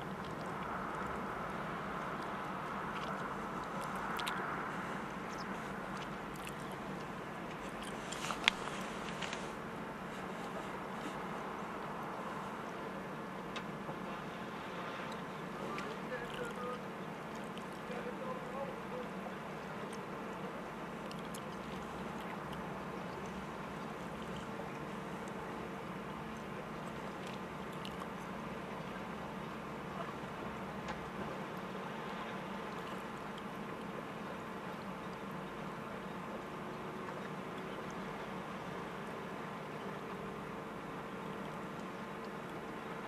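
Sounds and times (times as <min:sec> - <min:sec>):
distant machinery hum: 0:00.0 - 0:43.0
faint clicks: 0:02.9 - 0:04.4.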